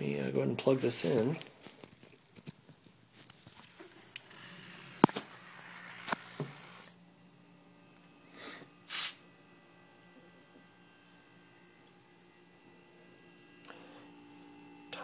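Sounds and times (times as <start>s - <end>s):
faint steady hum: 0.0s - 15.0s
short hisses of air: 8.4s - 9.2s.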